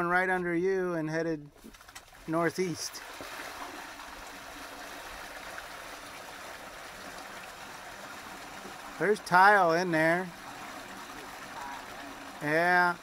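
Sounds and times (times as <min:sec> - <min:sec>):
water trickling through drain: 0:01.7 - 0:13.0.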